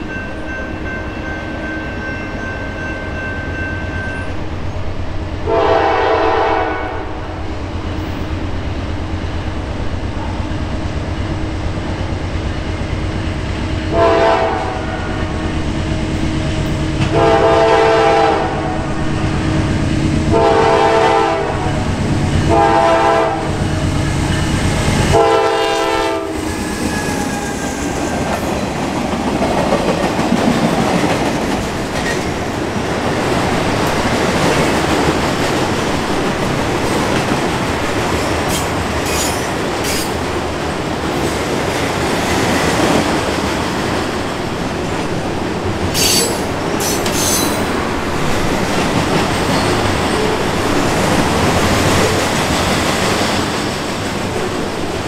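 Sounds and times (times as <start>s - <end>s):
train wheels on rails: 0.0s - 55.0s
locomotive air horn: 5.5s - 7.4s, 13.9s - 15.3s, 17.0s - 18.9s, 20.3s - 21.8s, 22.5s - 23.7s, 25.1s - 27.2s.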